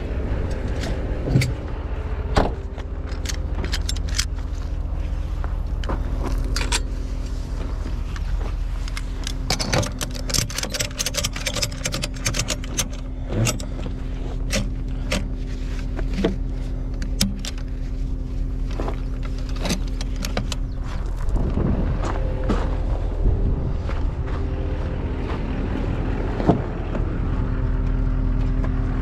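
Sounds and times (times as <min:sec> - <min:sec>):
engine hum: 0:00.0 - 0:29.0
metal ratchet clicks: 0:09.2 - 0:13.8.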